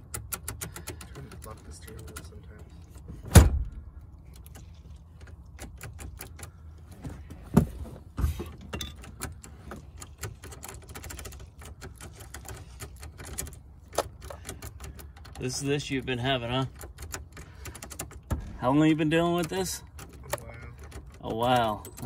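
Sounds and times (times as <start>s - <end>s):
key clicking in ignition lock: 0.0s - 2.4s.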